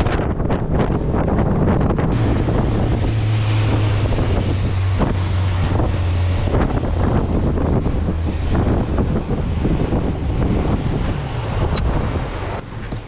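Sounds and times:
outboard motor droning: 0:00.0 - 0:13.0
wind buffeting microphone: 0:00.0 - 0:13.0.

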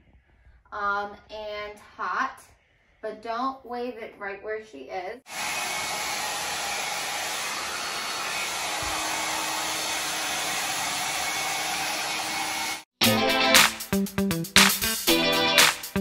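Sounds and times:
hair dryer running: 0:05.3 - 0:12.9
music with plucked guitar: 0:13.0 - 0:16.0.

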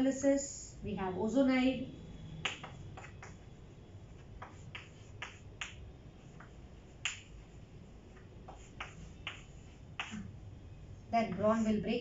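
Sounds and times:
chalk tapping on a chalkboard: 0:02.3 - 0:10.4, 0:11.2 - 0:11.8.

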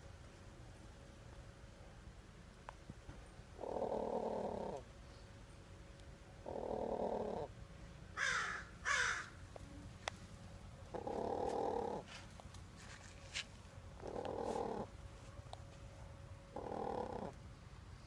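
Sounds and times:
hen giving low buzzy calls: 0:03.6 - 0:04.9, 0:06.4 - 0:09.8, 0:10.8 - 0:12.1, 0:14.0 - 0:15.0, 0:16.4 - 0:17.5
crow cawing: 0:08.2 - 0:09.4.

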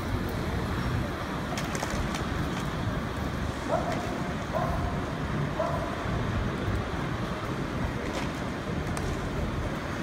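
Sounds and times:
passing cars rumbling: 0:00.0 - 0:10.0.

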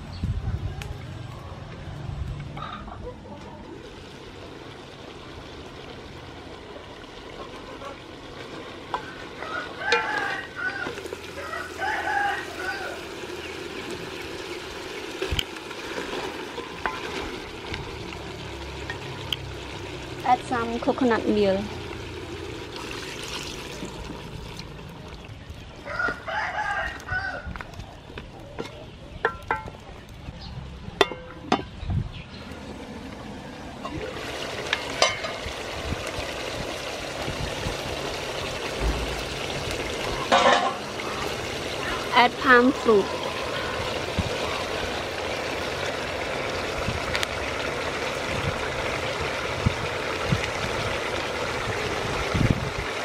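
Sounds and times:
curry sizzling in a pot: 0:03.8 - 0:26.1, 0:33.8 - 0:53.0
rooster crowing: 0:09.4 - 0:13.2, 0:25.8 - 0:27.6.

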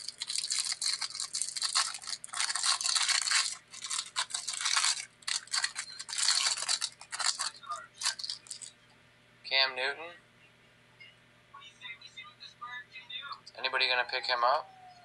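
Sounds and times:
cellophane wrapper crinkling and tearing: 0:00.0 - 0:08.7.

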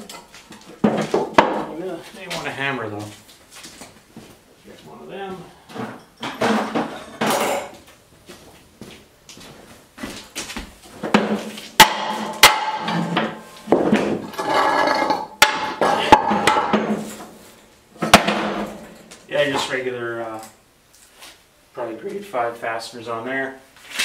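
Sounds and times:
hammer striking metal: 0:11.8 - 0:13.0.

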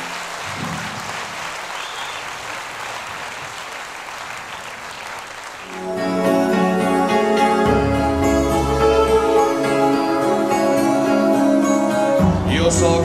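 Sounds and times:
audience applauding: 0:00.0 - 0:06.6
music with held chords: 0:05.7 - 0:13.0.

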